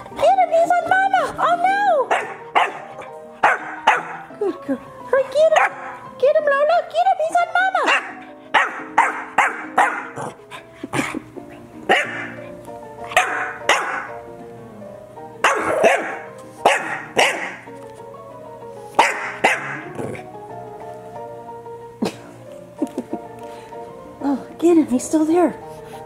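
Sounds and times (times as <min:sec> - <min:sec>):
background music: 0:00.0 - 0:26.0
puppy barking: 0:02.1 - 0:04.3, 0:05.4 - 0:06.0, 0:07.8 - 0:10.4, 0:11.9 - 0:14.2, 0:15.4 - 0:17.7, 0:19.0 - 0:20.2.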